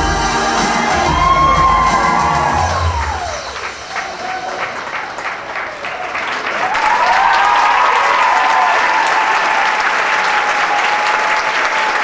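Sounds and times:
audience applauding: 0:00.4 - 0:12.0.

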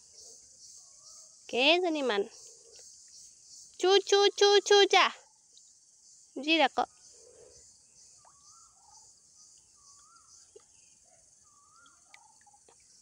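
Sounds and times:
high insect drone: 0:00.0 - 0:13.0
bird wavering call: 0:08.2 - 0:10.6, 0:11.4 - 0:12.7.

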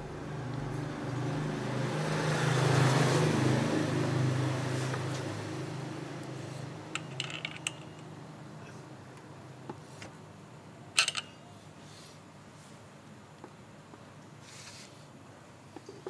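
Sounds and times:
vehicle passing by: 0:00.0 - 0:07.5.

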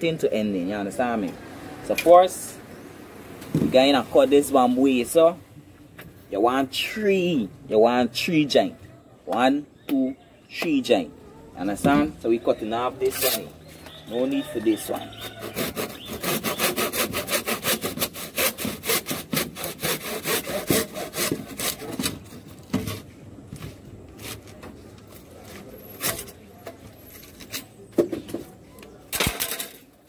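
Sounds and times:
hand saw cutting bamboo: 0:14.8 - 0:23.0.

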